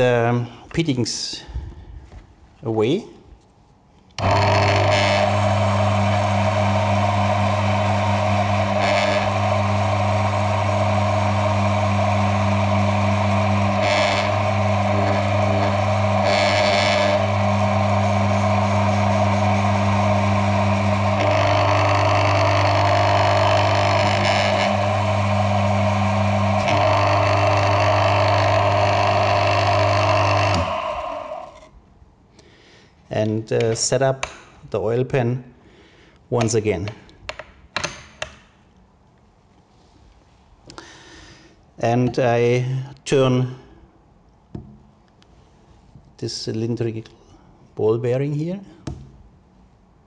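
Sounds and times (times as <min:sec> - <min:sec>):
mains hum: 0:04.1 - 0:37.4, 0:39.2 - 0:44.4
electric motor running: 0:04.2 - 0:31.7
metal ring grinding: 0:04.2 - 0:31.7.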